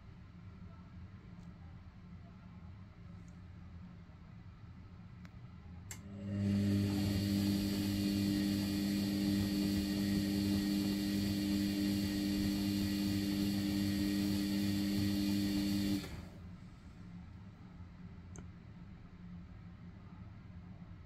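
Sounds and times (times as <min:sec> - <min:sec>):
washing machine motor click: 0:05.9 - 0:16.4
washing machine drum humming: 0:05.9 - 0:16.5.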